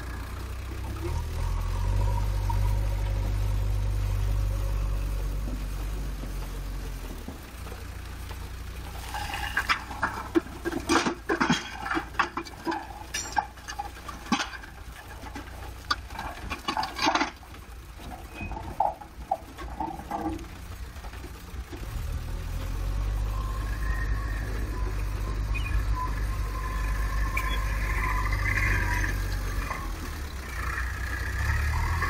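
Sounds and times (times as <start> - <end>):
diesel engine running: 0.0 - 32.0
loose stones knocking: 5.3 - 22.8.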